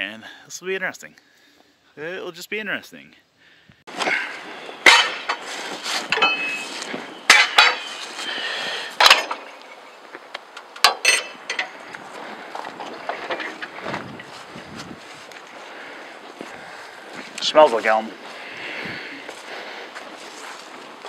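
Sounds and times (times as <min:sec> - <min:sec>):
metallic clanks and knocks: 0:04.8 - 0:05.5, 0:06.1 - 0:08.1, 0:09.0 - 0:09.6, 0:10.8 - 0:11.9.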